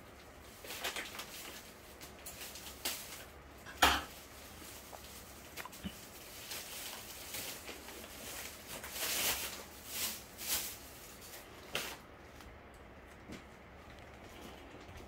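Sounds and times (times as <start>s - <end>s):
soft rustling and scraping: 4.0s - 15.0s.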